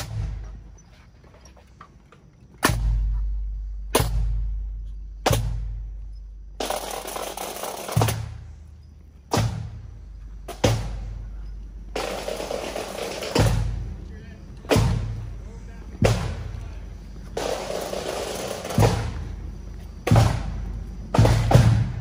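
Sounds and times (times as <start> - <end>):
deep marching drum strokes: 0.0 - 22.0
snare drum roll: 12.0 - 13.8, 17.4 - 19.2, 20.1 - 22.0.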